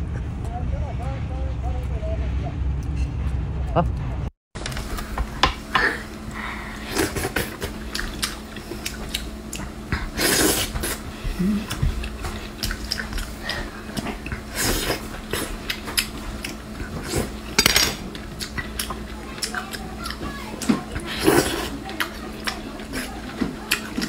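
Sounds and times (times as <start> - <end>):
wet chewing: 6.8 - 24.0.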